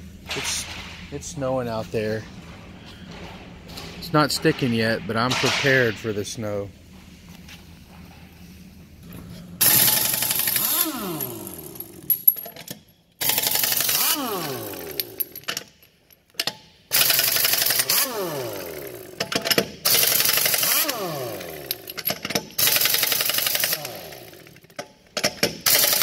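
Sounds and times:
air impact wrench whine: 9.6 - 12.3, 13.2 - 15.5, 16.9 - 24.7, 25.6 - 26.0.

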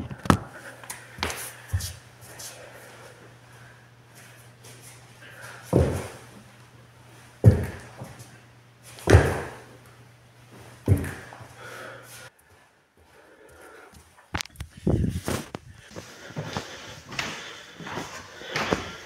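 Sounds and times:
steady low hum: 0.0 - 19.0
heavy thuds of landing jumps: 5.7 - 6.2, 7.4 - 8.1, 9.0 - 9.7, 10.8 - 11.4.

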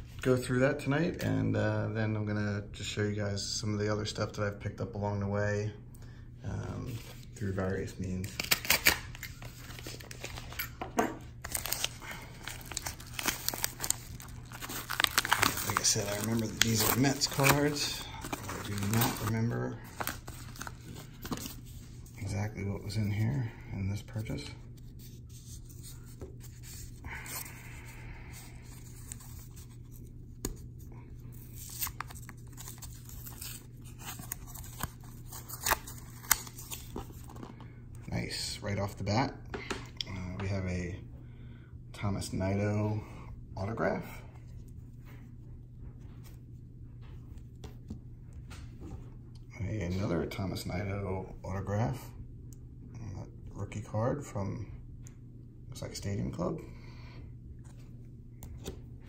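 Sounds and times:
bubble mailer crinkling: 11.4 - 22.2, 31.4 - 37.6.

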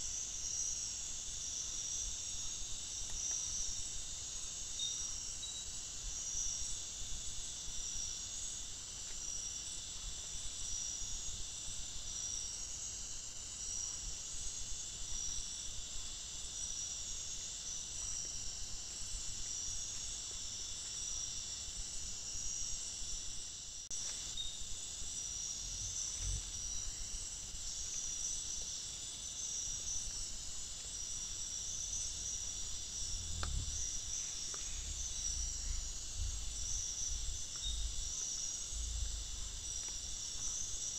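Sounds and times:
night insects trilling: 0.0 - 40.9
low thumps: 32.0 - 40.1.

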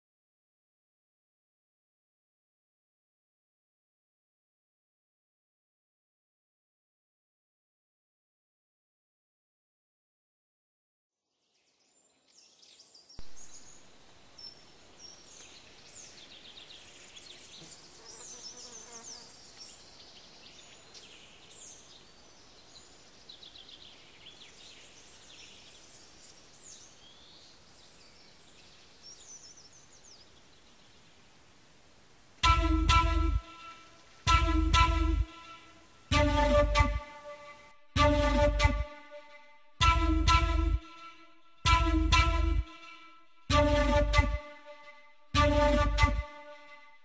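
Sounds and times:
small birds chirping: 11.3 - 31.8
microphone hiss: 11.8 - 37.7.

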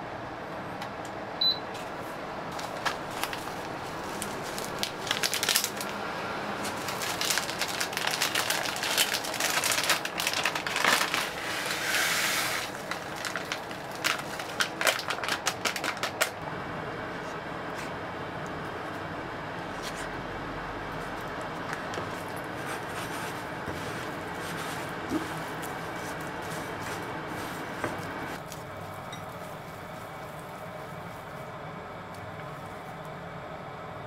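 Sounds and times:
digital kitchen scale beep: 1.4 - 1.6
fine flour pouring hiss: 2.0 - 14.8, 22.5 - 31.7.

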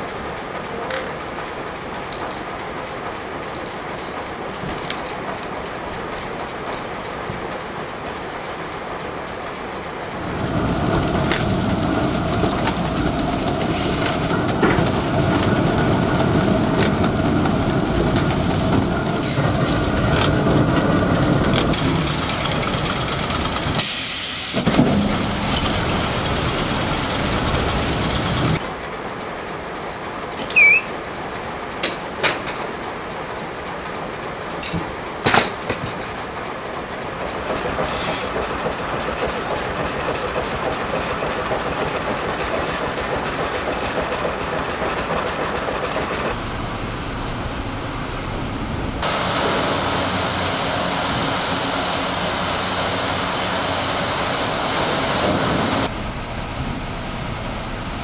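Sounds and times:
steady machinery noise: 10.1 - 28.6, 37.2 - 58.0
sharp hiss: 23.8 - 26.0, 49.0 - 55.9.

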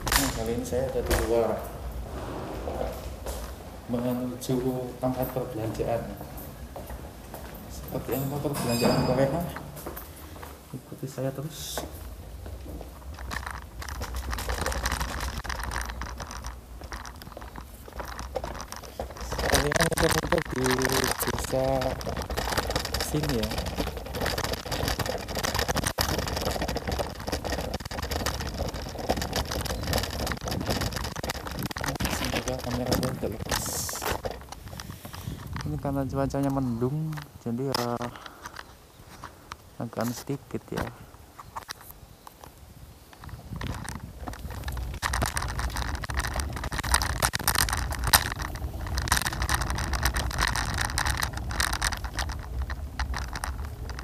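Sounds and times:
wind on microphone: 0.0 - 3.9, 19.1 - 36.6, 41.0 - 54.0
scooter wheels rattling on pavement: 0.0 - 9.9, 11.2 - 54.0.

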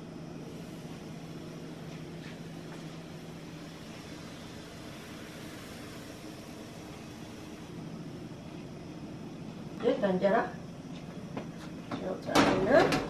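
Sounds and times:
kitchen fan motor humming: 0.0 - 13.0.

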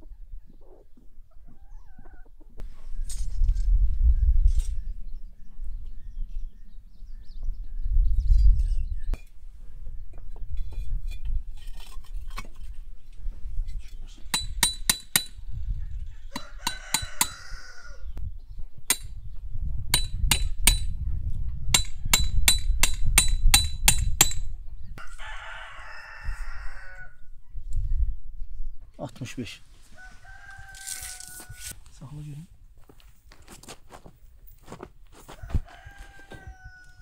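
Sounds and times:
hammer striking steel rods: 14.3 - 15.4, 20.0 - 20.9, 21.8 - 24.5
rooster crowing: 16.0 - 18.1, 25.0 - 27.3, 29.9 - 31.8, 35.3 - 37.0.

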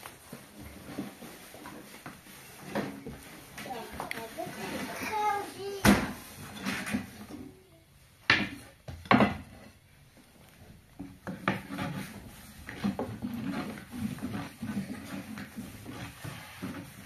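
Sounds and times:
cookware and utensils clattering: 3.6 - 7.5.

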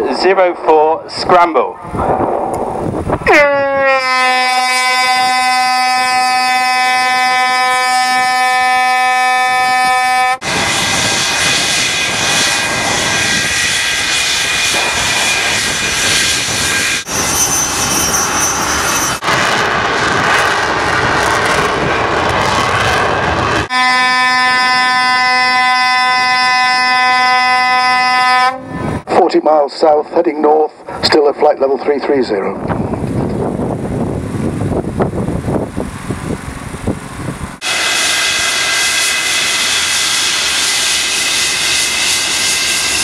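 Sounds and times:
alarm horn steady tone: 3.3 - 10.4, 23.7 - 29.0
jet engines roaring: 10.4 - 24.6, 28.7 - 43.0.

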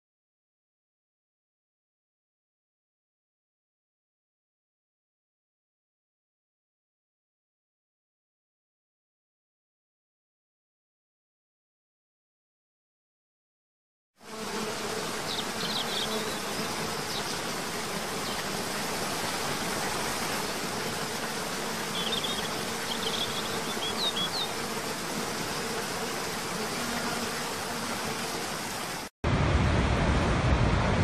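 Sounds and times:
high bird chirps: 22.0 - 24.5.

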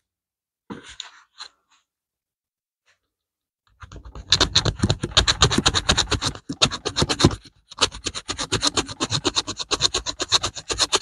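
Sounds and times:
metal file rasping on coin: 4.0 - 11.0.

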